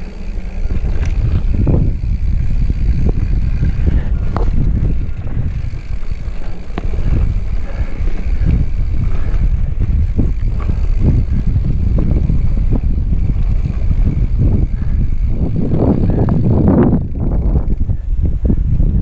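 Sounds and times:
tyre noise on dirt: 0.0 - 17.6
bike clicks and knocks: 0.0 - 18.0
wind rumbling on microphone: 0.0 - 19.0.

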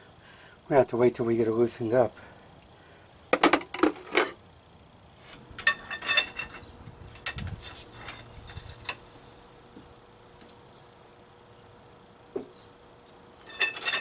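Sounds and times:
metal tools clanking: 5.6 - 9.0, 13.4 - 14.0.

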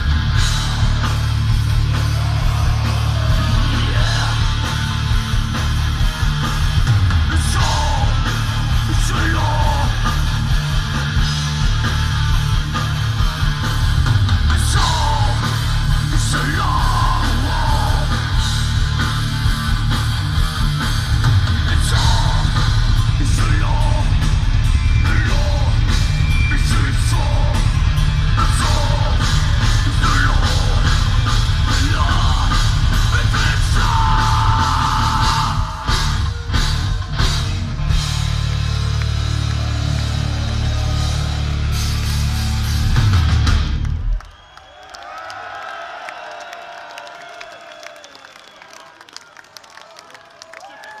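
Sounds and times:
distorted electric guitar: 0.0 - 44.1
bass guitar: 0.0 - 44.3
shouted vocals: 1.7 - 5.2, 31.6 - 36.6.

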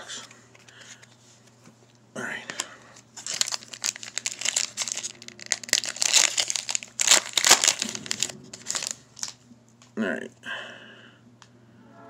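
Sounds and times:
foil wrapper crinkling and tearing: 3.1 - 9.4.

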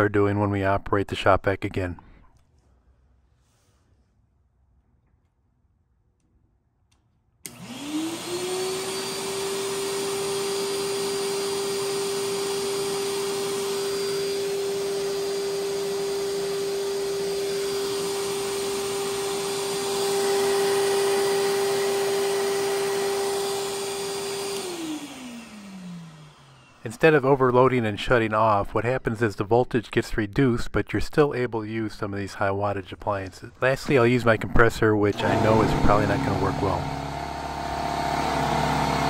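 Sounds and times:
shop vac motor humming: 7.4 - 28.0, 33.6 - 39.0.

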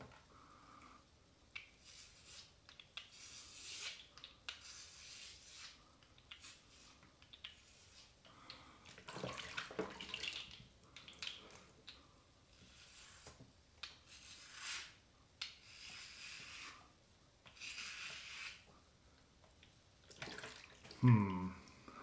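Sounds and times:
razor scraping scalp: 1.8 - 8.2, 12.6 - 13.4, 14.0 - 16.8, 17.5 - 18.7.

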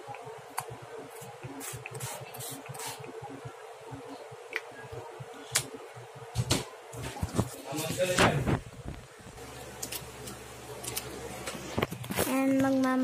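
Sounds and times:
spray bottle hissing mist: 1.6 - 3.1.

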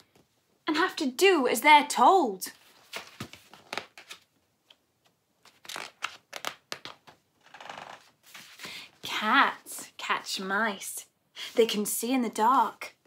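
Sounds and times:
book pages rustling: 2.5 - 8.9
soft paper swish: 8.2 - 8.8.

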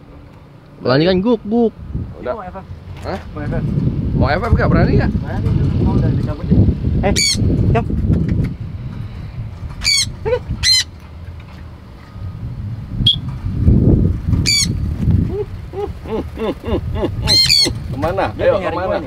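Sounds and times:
parrot screeching: 7.2 - 7.4, 9.8 - 10.9, 14.4 - 14.8, 17.2 - 17.8.

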